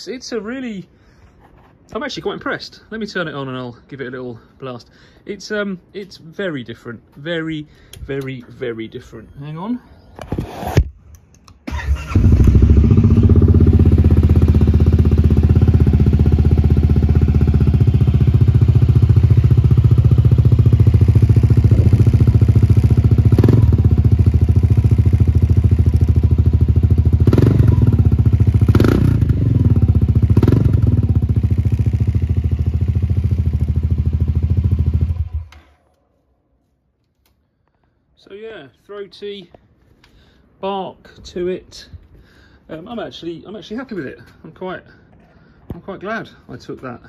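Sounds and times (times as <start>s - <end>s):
scooter engine idling: 12.1s - 35.5s.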